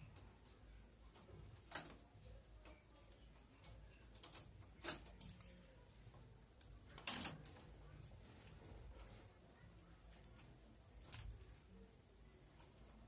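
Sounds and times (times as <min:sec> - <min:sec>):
knitting machine needles clicking: 0:01.1 - 0:05.7, 0:06.6 - 0:08.2, 0:10.1 - 0:11.8.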